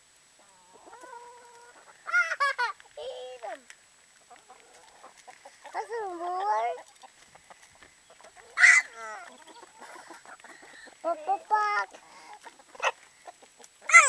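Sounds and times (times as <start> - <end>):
hens clucking: 0.4 - 14.0
hen squawk: 8.1 - 11.0.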